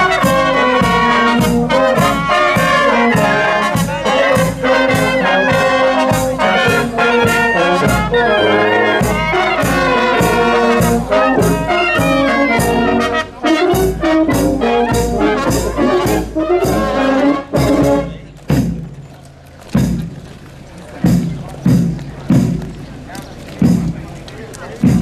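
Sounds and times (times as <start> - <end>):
marching brass band playing: 0.0 - 19.1, 21.0 - 22.9
bass drum beats: 8.9 - 19.1, 19.7 - 24.2, 24.8 - 25.0.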